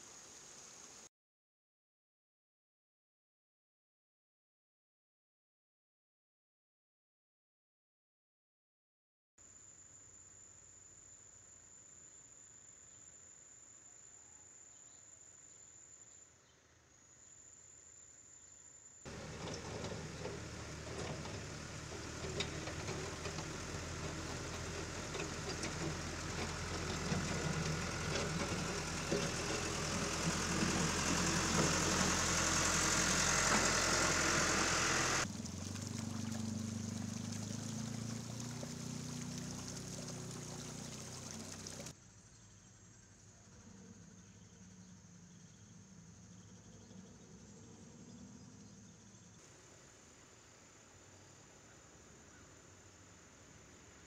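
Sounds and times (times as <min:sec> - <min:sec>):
diesel engine running: 0:19.1 - 0:41.9
floodwater rushing: 0:19.1 - 0:41.9.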